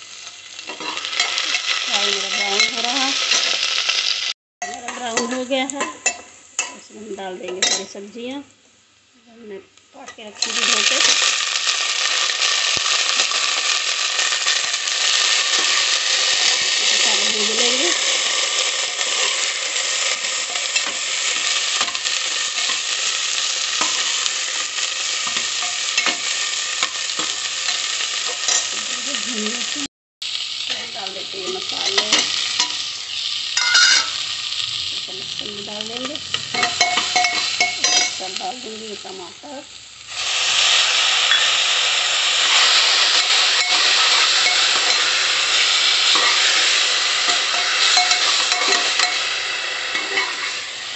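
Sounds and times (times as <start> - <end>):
vegetables sizzling in oil: 0.0 - 50.9.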